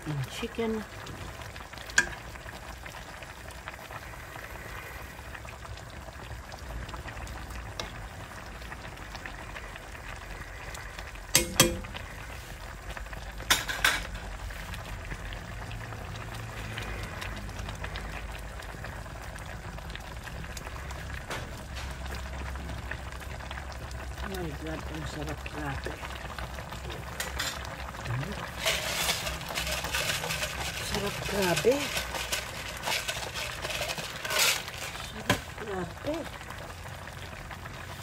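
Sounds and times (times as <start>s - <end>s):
soup bubbling in a pot: 0.0s - 38.0s
spoon knocking against pot: 11.4s - 12.0s.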